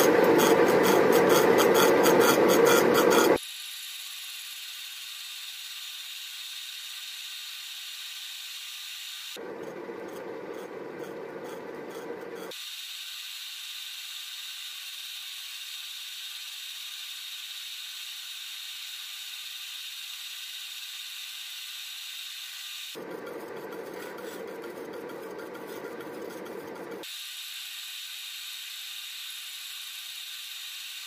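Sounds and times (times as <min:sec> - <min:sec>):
saw cutting brass: 0:00.0 - 0:03.4, 0:09.4 - 0:12.6, 0:23.0 - 0:27.0.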